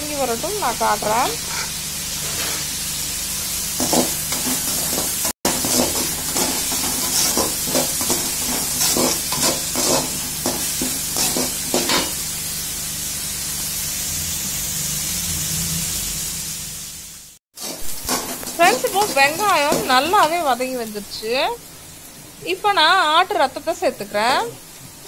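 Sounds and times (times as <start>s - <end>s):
onions sizzling in oil: 0.0s - 25.0s
metal spatula scraping pan: 1.4s - 2.8s, 3.8s - 12.2s.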